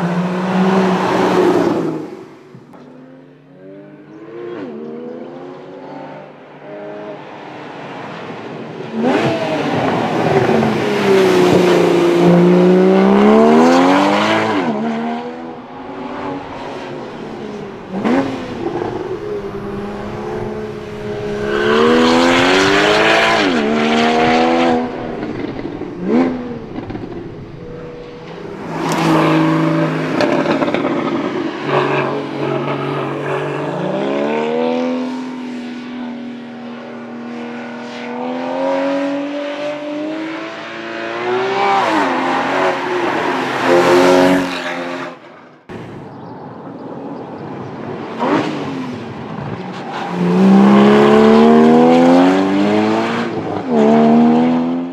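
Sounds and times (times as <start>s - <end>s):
car engine revving hard: 9.0s - 35.2s, 50.1s - 54.9s.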